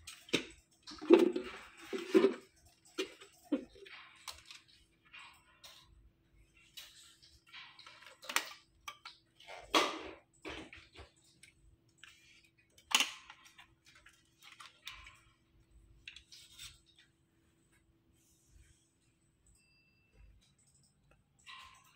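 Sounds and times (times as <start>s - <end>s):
plastic parts clicking and knocking: 0.0s - 17.2s.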